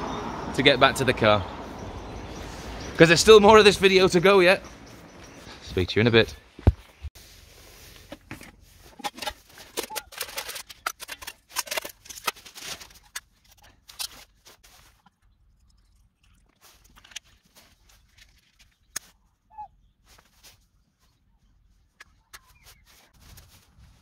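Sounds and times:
metal pans clattering: 8.9 - 13.0.

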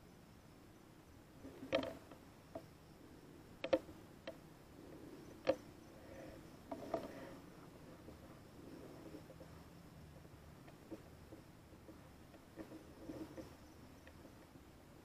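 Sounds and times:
faint background hiss: 0.0 - 15.0.

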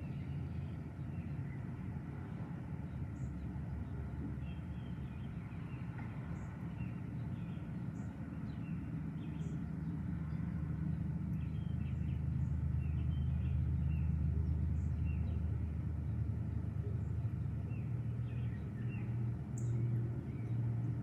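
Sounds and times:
birds chirping: 2.9 - 15.5, 16.9 - 20.7.

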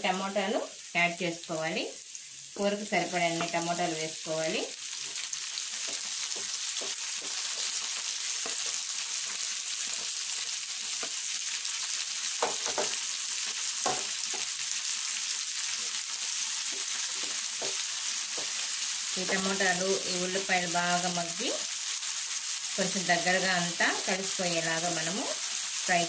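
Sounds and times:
vegetables sizzling in hot oil: 0.0 - 26.0
spoon knocking and scraping pan: 3.3 - 3.7, 5.0 - 8.9, 12.4 - 14.6, 16.6 - 19.7.

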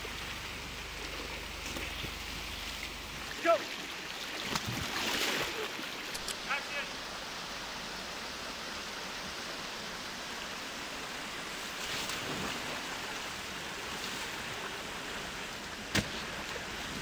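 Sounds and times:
sharp click: 6.1 - 6.4
waterfall rushing: 6.4 - 11.6.

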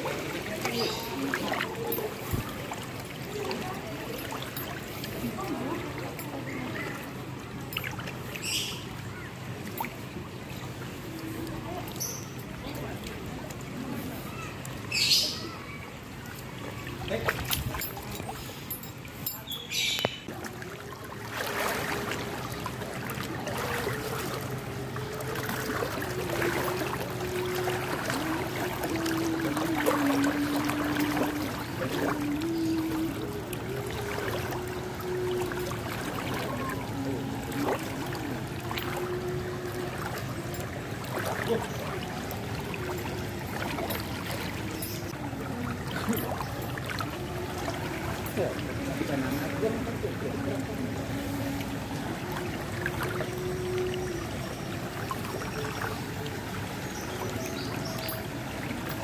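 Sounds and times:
floodwater rushing: 0.0 - 59.0
faint hum: 20.0 - 59.0.

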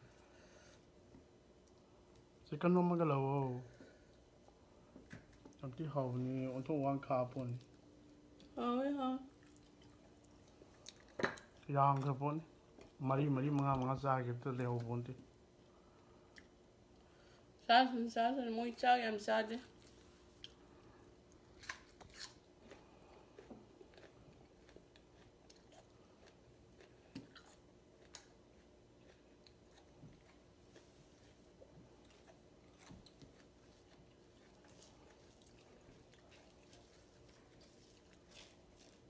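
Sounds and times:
faint steady hum: 0.0 - 39.0
person chewing: 9.3 - 14.0, 15.3 - 17.0, 19.8 - 39.0.

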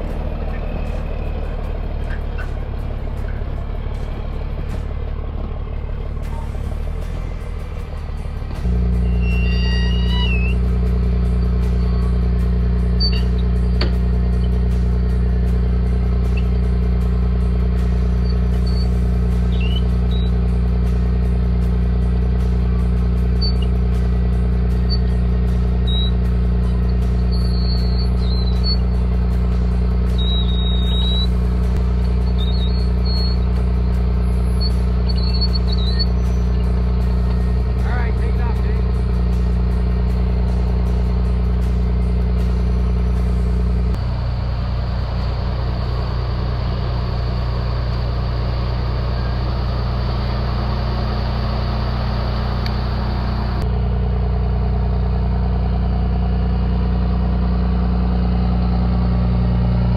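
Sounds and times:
diesel engine running: 0.0 - 59.9
faint high squeaks: 8.8 - 10.7, 12.9 - 14.6, 18.2 - 20.4, 23.4 - 23.8, 25.8 - 29.0, 30.1 - 31.3, 32.0 - 33.5, 34.1 - 36.8.

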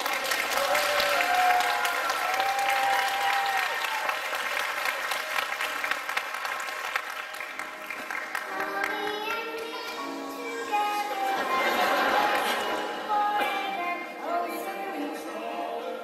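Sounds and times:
long cheers: 0.0 - 4.3
audience clapping: 0.0 - 9.8.

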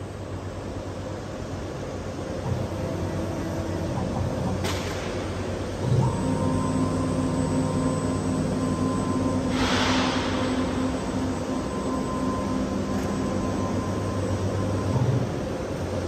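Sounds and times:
machine hum: 0.0 - 16.0
high whine: 6.0 - 15.6
brief hiss: 9.5 - 10.6.

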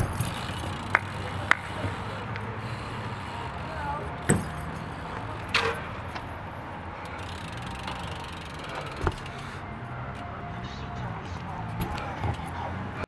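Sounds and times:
bike freewheel hub clicking: 0.0 - 6.2, 7.0 - 9.5.

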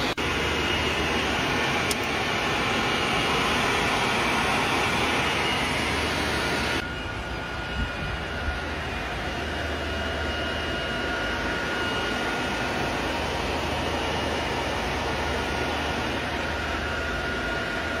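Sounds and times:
cooling fans rushing air: 0.0 - 18.0
faint high whine: 0.0 - 18.0
low hum: 0.0 - 18.0.

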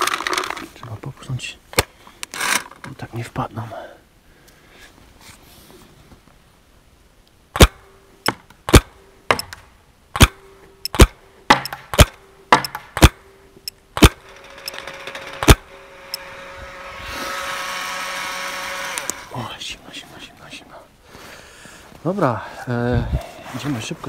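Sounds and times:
paintball marker shots: 7.6 - 9.6, 10.2 - 13.2, 14.0 - 14.2.

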